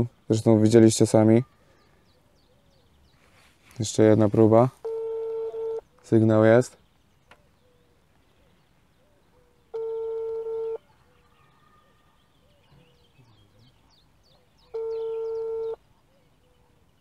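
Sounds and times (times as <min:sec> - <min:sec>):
telephone ringback tone: 0:04.8 - 0:05.8, 0:09.7 - 0:10.8, 0:14.7 - 0:15.8
faint bird chirps: 0:05.4 - 0:17.0.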